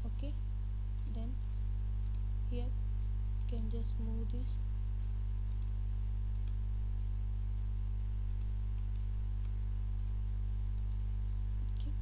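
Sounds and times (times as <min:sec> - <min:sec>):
electrical mains hum: 0:00.0 - 0:12.0
faint clicks: 0:05.4 - 0:06.6.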